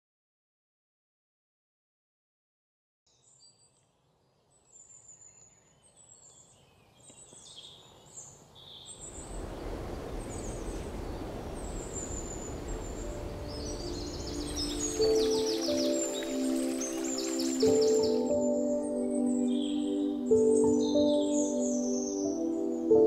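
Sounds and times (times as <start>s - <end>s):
birds chirping: 3.1s - 23.0s
steady rushing noise: 9.0s - 18.2s.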